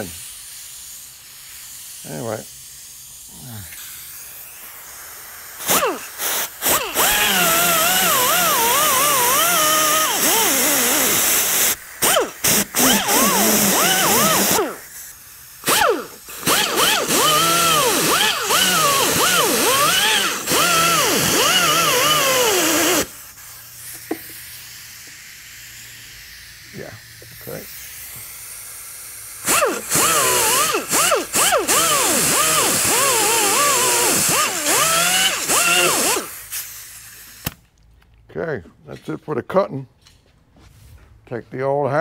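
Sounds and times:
air cut-off wheel hissing and whining: 0:00.0 - 0:37.6.

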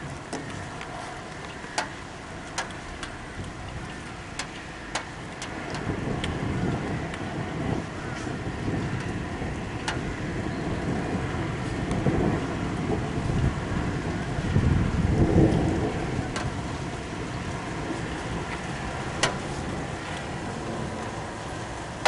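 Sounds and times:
steady rushing noise: 0:00.0 - 0:22.0
rolling thunder: 0:02.3 - 0:22.0
sharp ticks: 0:09.8 - 0:10.0.

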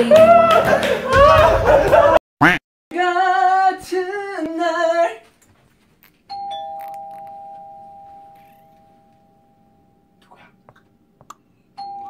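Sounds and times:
person singing: 0:00.0 - 0:01.7, 0:02.9 - 0:05.2.

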